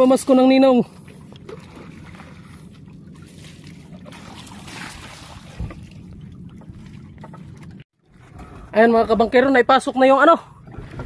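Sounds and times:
water and wind noise: 0.0 - 11.0
low rumble: 0.9 - 9.5.

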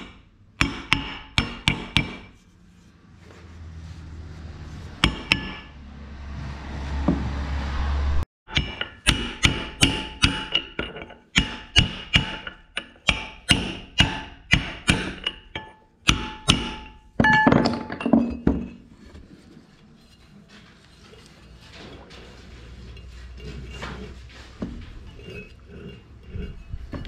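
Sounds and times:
hammer striking metal: 0.0 - 2.4, 5.0 - 5.8, 8.5 - 18.1
low rumble: 2.9 - 8.3.

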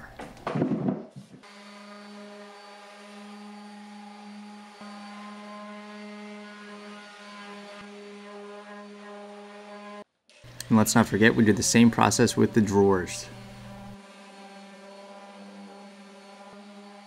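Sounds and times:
electric sander on wood: 1.4 - 17.0.

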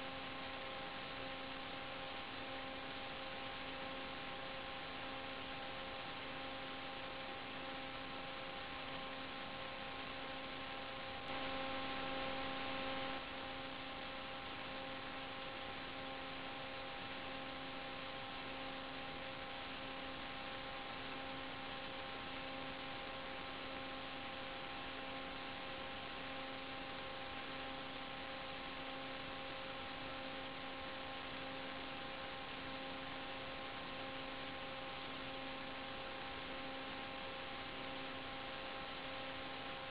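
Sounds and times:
electrical hum over hiss: 0.0 - 39.9.

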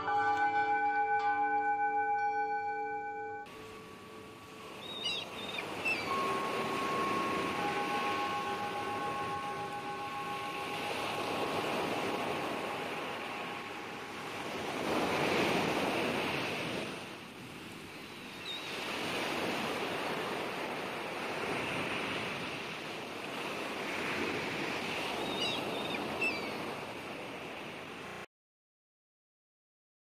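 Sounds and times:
faint high chirps: 3.5 - 11.2
sea waves washing: 3.5 - 28.2.

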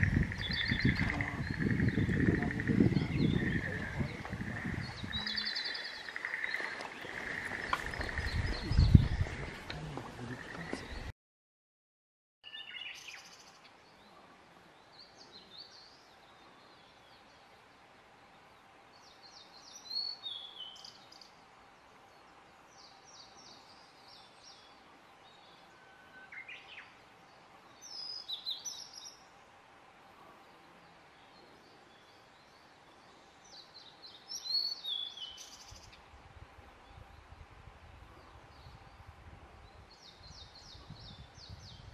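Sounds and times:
flycatcher singing: 0.0 - 9.2
robin song: 0.0 - 11.1, 18.4 - 36.2.

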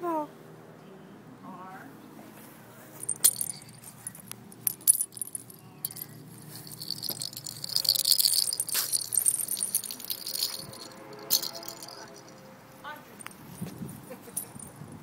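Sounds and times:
cat ball bells jingling: 3.0 - 12.5, 13.2 - 14.8.

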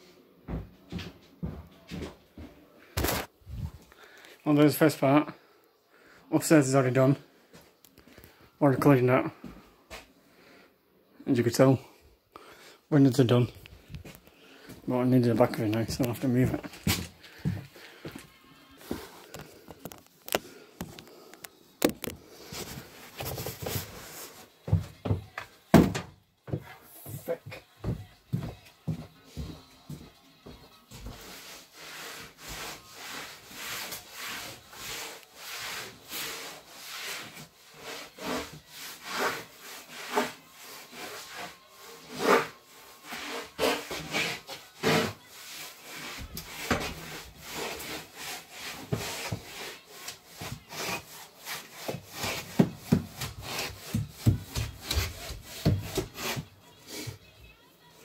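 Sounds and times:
floor being scrubbed by hand: 22.3 - 25.2, 30.5 - 57.3.

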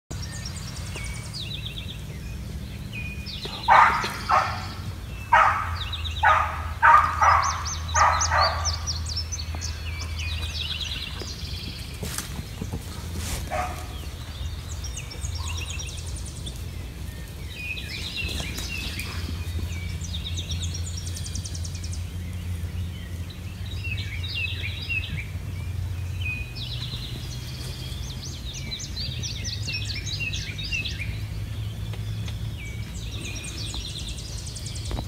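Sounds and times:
songbirds chirping: 0.1 - 35.0
dog barking: 3.5 - 8.9, 13.5 - 14.0.

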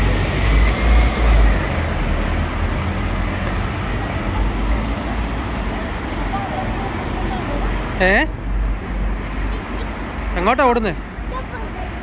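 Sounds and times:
bus pulling away: 0.0 - 7.9.

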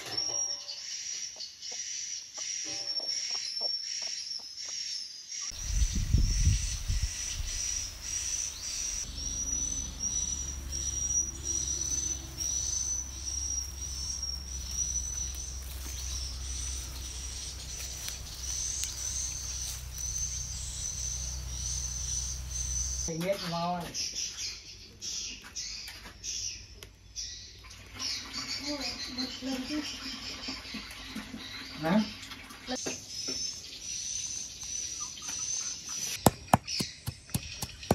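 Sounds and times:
insects chirping: 0.0 - 23.1
low rumble: 5.5 - 23.1.

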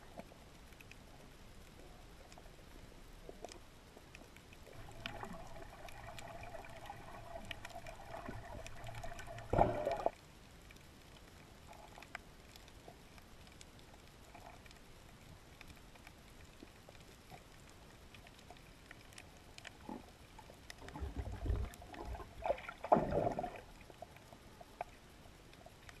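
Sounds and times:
rush of water bubbles: 4.8 - 10.1, 20.9 - 23.7
underwater hiss: 5.0 - 10.1.

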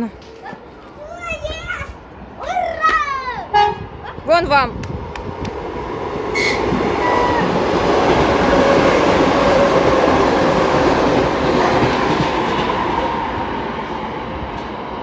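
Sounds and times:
electric train passing: 0.0 - 15.0.

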